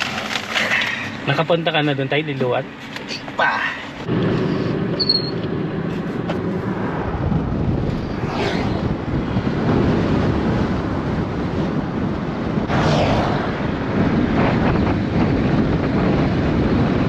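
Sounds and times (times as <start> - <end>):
wind and road noise: 0.0 - 17.0
brief whoosh: 7.8 - 9.0.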